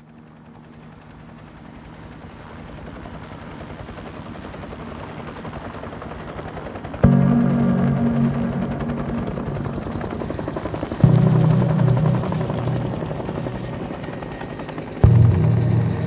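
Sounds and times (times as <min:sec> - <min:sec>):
low synth chord: 0:07.0 - 0:16.0
helicopter rotor chopping: 0:08.4 - 0:16.0.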